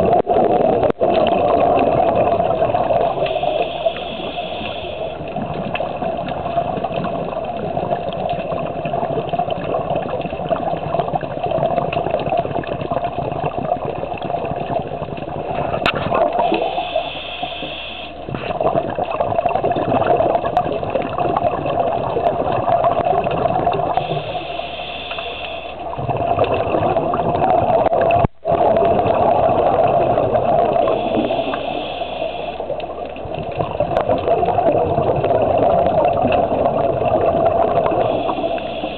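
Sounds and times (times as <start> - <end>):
underwater regulator bubbling: 0.0 - 38.9
hiss of inhaled breath: 3.2 - 5.2, 16.4 - 18.3, 24.0 - 25.8, 30.9 - 32.8, 38.0 - 38.9.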